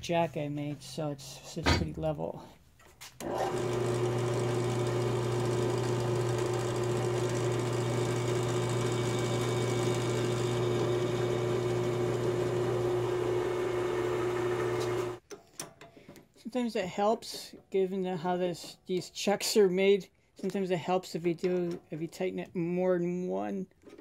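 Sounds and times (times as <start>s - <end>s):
drill press motor humming: 3.2s - 15.2s.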